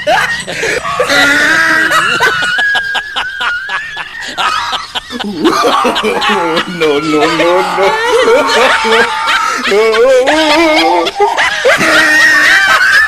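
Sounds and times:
cackling laughter: 0:00.0 - 0:13.0
people laughing hard: 0:00.0 - 0:13.0.

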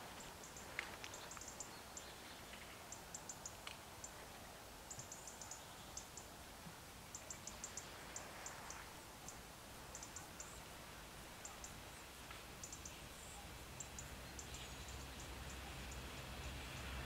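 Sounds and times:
faint high ticks: 0:00.2 - 0:04.2, 0:04.9 - 0:06.3, 0:07.1 - 0:10.6, 0:11.4 - 0:13.0.

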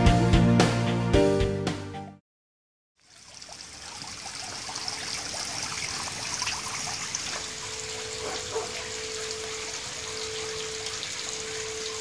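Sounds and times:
fountain splashing and trickling: 0:03.0 - 0:12.0.

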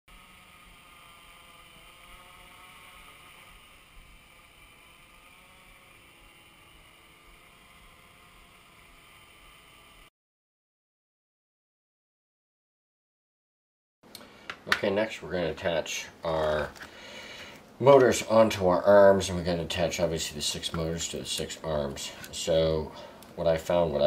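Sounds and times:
drone propellers whirring: 0:00.1 - 0:10.1.

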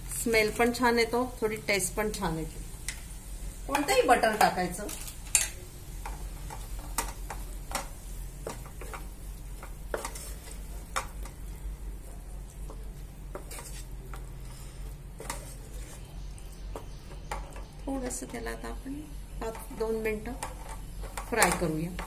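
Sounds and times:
light sizzle of frying: 0:00.0 - 0:22.0
spatula scraping a pan: 0:05.4 - 0:11.5, 0:12.7 - 0:17.6.

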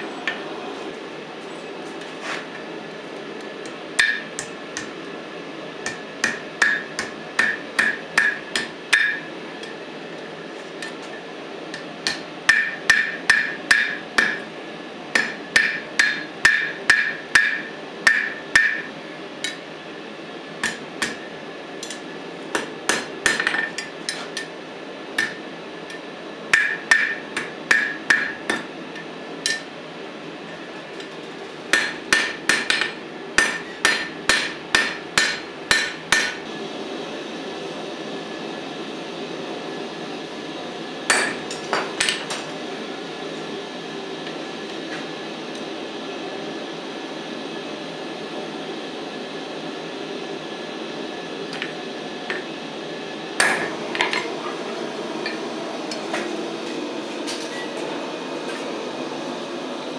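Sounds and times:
hammer striking steel on anvil: 0:04.0 - 0:05.0, 0:05.8 - 0:09.8, 0:11.7 - 0:14.5, 0:15.1 - 0:19.7, 0:20.6 - 0:24.5, 0:25.2 - 0:29.7, 0:31.7 - 0:36.4, 0:41.1 - 0:42.4, 0:53.4 - 0:54.3.

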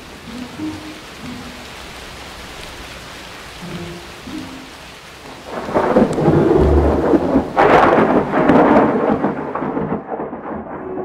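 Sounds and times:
steady rain: 0:00.0 - 0:11.0
thunder rumbling and cracking: 0:05.3 - 0:11.0.

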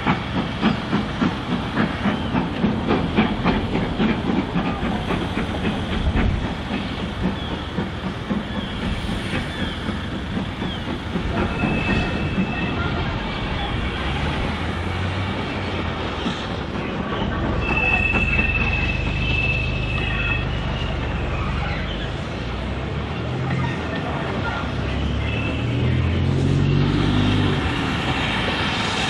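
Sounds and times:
steam train rumbling: 0:00.0 - 0:29.0
wheel flanges squealing: 0:08.5 - 0:15.6, 0:17.0 - 0:22.4.

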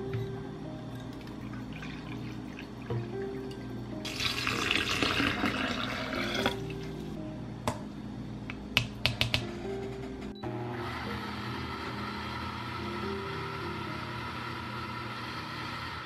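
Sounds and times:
soft background music: 0:00.0 - 0:16.0
water pouring into blender: 0:01.2 - 0:03.2, 0:04.0 - 0:06.7.

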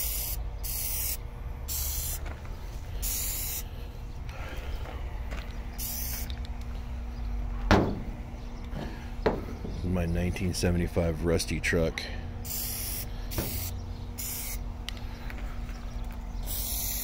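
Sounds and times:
aerosol can spraying: 0:00.0 - 0:02.3, 0:03.0 - 0:03.6, 0:05.8 - 0:06.3, 0:12.5 - 0:14.6, 0:16.5 - 0:17.0.

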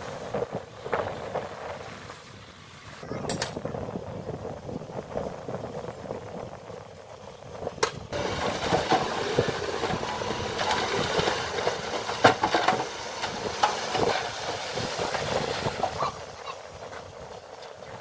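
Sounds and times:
soil and rocks tumbling from truck: 0:07.7 - 0:18.0.

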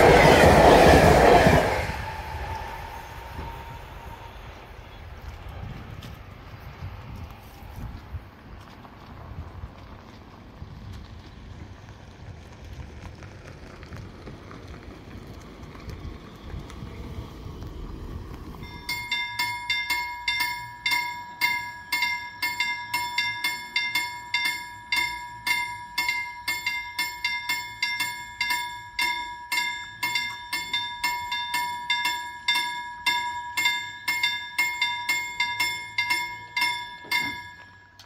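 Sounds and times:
low rumbling noise: 0:00.0 - 0:19.4
level crossing bell ringing: 0:18.6 - 0:38.0.

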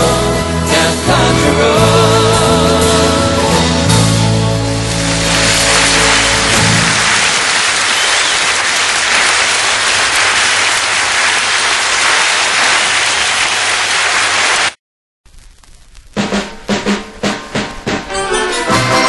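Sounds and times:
audience applause: 0:04.8 - 0:14.8.

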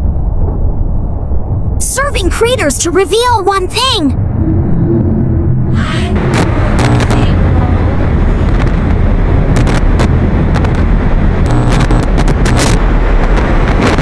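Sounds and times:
deep rumble: 0:00.0 - 0:14.0
dense static hiss: 0:06.2 - 0:14.0
sharp crackles and clicks: 0:06.2 - 0:14.0.

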